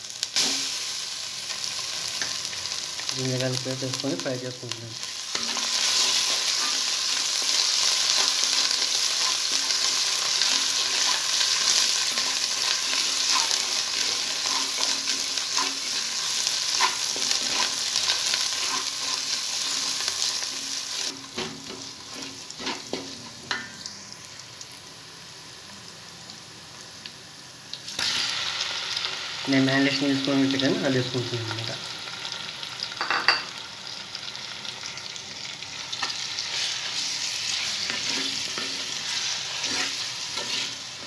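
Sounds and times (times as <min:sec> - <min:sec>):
food sizzling in oil: 0:00.0 - 0:41.0.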